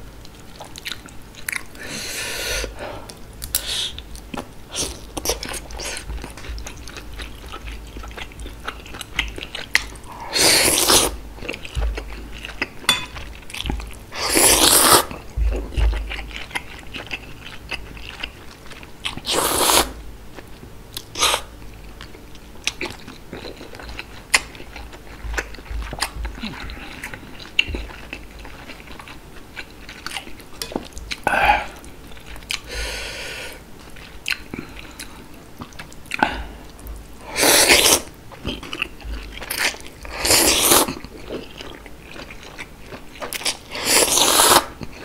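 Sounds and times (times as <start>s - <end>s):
wet chewing: 3.1s - 32.8s
loud noodle slurp: 14.2s - 15.1s, 19.3s - 20.0s, 37.3s - 38.1s, 40.2s - 40.9s, 43.8s - 44.7s.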